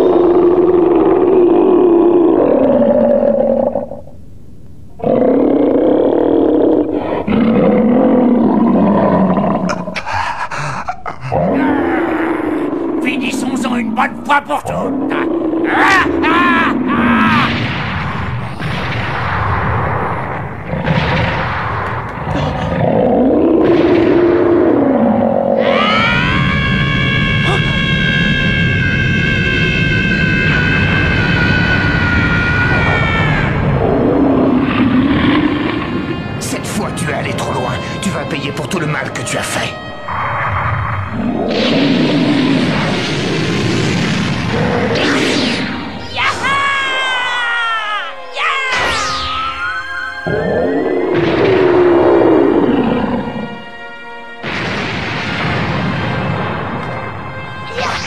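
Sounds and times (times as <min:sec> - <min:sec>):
monster roaring: 0:00.0 - 0:04.0, 0:05.0 - 0:36.4, 0:40.1 - 0:47.0, 0:50.3 - 0:53.7.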